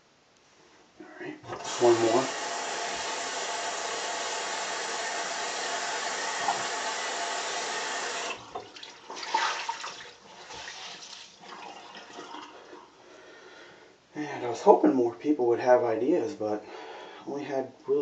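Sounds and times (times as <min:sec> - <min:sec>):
sink tap running: 0:01.5 - 0:08.8
water splashes and drips: 0:08.2 - 0:12.8.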